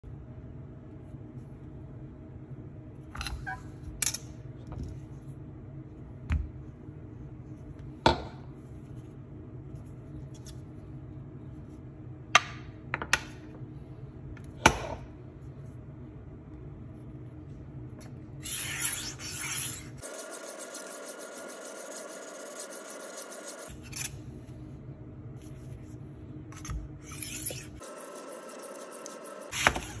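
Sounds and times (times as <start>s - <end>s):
knife sharpener rasping grind: 18.4s - 24.1s, 27.0s - 30.0s.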